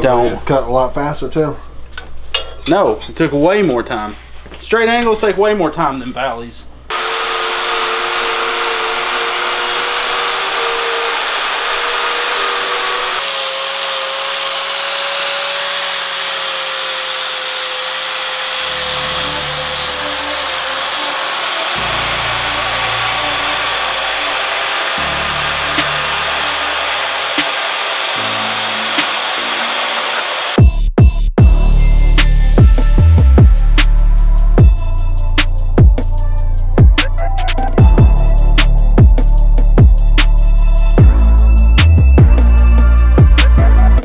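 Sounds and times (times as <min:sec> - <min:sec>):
angle grinder cutting steel: 0:06.9 - 0:30.7
background music with bass line: 0:30.6 - 0:44.0.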